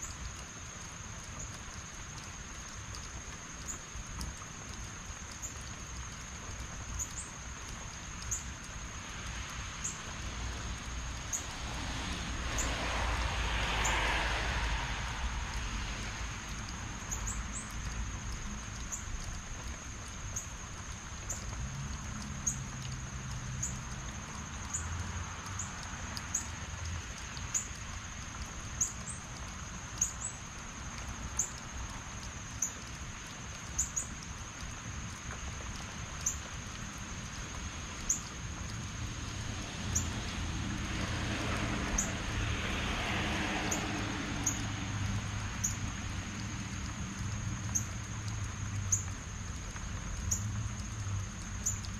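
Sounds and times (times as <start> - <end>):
heavy rain falling: 0.0 - 51.9
rushing swell: 11.6 - 16.4.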